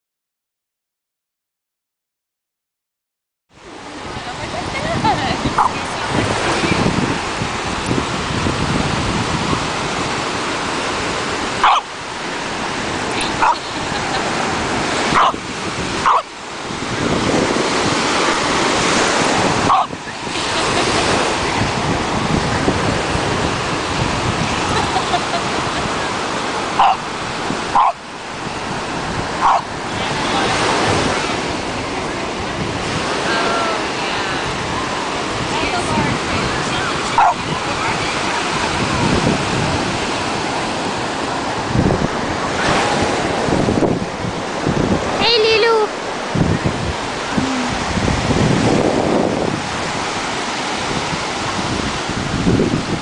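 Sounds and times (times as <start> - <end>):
ocean surf: 3.5 - 53.0
wind on microphone: 3.7 - 53.0
dog barking: 5.6 - 5.8, 11.6 - 11.9, 13.3 - 13.6, 15.1 - 15.4, 16.0 - 16.3, 19.7 - 20.0, 26.8 - 27.0, 27.7 - 28.0, 29.4 - 29.7, 37.1 - 37.5.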